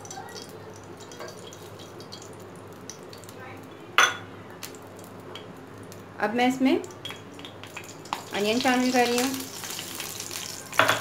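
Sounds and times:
kitchenware clinking: 0:04.0 - 0:04.3, 0:10.7 - 0:11.0.

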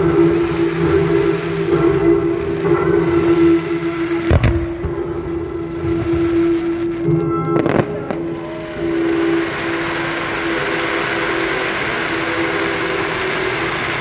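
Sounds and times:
firework bangs and crackles: 0:00.0 - 0:14.0
low musical tone: 0:00.0 - 0:14.0
hiss of spraying sparks: 0:07.7 - 0:14.0.

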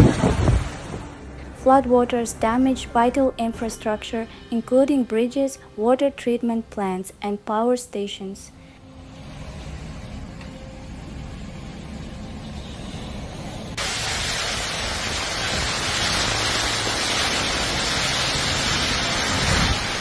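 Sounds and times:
driving rain: 0:00.0 - 0:01.2, 0:13.6 - 0:20.0
storm wind buffeting microphone: 0:00.0 - 0:01.2, 0:13.8 - 0:20.0.

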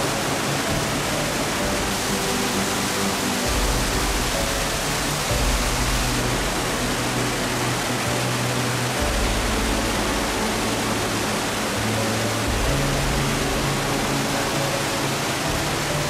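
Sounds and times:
soft background music: 0:00.0 - 0:16.0
waterfall rushing: 0:00.0 - 0:16.0.

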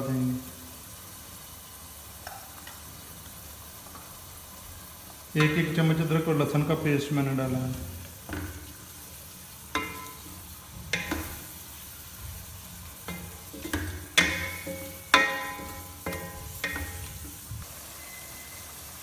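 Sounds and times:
meat sizzling in oil: 0:00.0 - 0:19.0
wooden spoon knocking on pot: 0:08.2 - 0:08.8, 0:09.7 - 0:11.5, 0:12.2 - 0:17.4.

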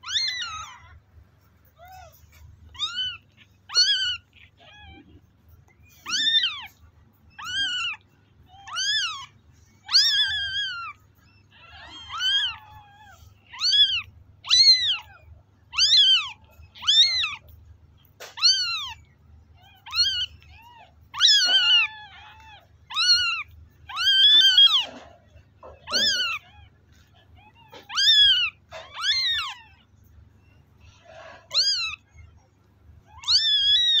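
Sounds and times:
kitten mewing: 0:00.0 - 0:29.9, 0:31.0 - 0:32.1, 0:33.1 - 0:34.0.

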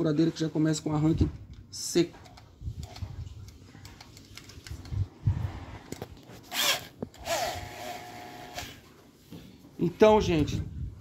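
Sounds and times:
electric drill whining: 0:06.5 - 0:08.8.

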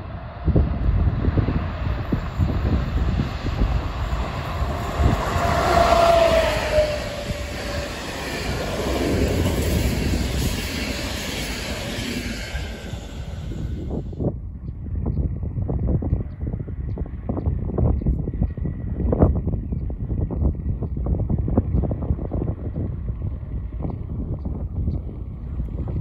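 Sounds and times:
wind buffeting microphone: 0:00.0 - 0:26.0
train wheels on rails: 0:00.3 - 0:14.2.

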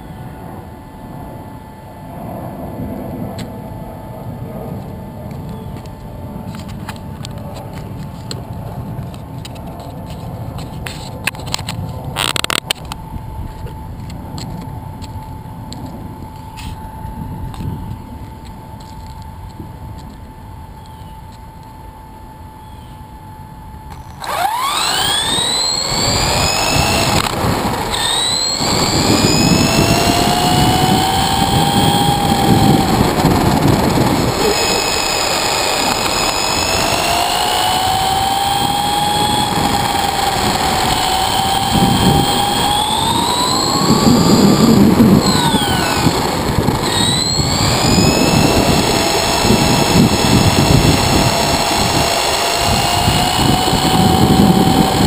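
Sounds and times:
electric motor whining: 0:23.9 - 0:55.0.

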